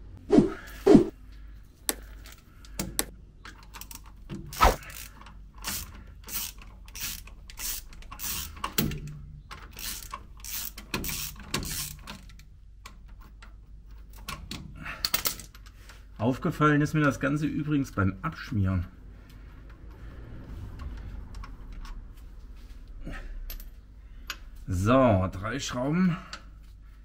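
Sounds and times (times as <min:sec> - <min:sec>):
ratchet wrench clicking: 0:03.7 - 0:09.0, 0:09.6 - 0:12.3.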